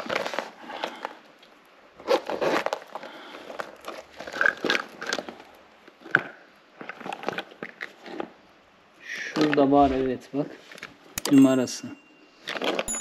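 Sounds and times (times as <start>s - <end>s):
handbags rustling and crinkling: 0.0s - 8.4s, 12.3s - 13.0s.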